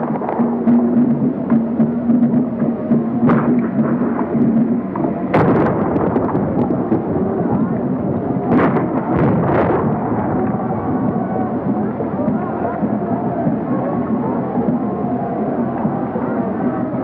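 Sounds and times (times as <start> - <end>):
rumbling battle din: 0.0 - 17.0
musket fire: 3.2 - 7.5, 8.4 - 11.4.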